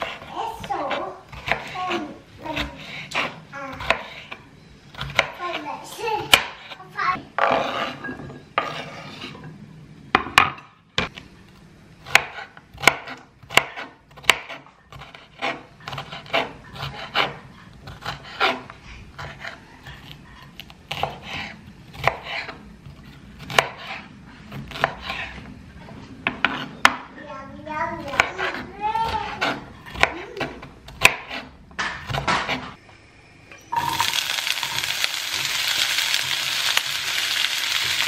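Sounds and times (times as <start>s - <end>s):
knife chopping on wooden board: 0.0s - 4.4s, 5.0s - 5.4s, 6.3s - 6.8s, 12.0s - 25.4s, 28.1s - 32.7s.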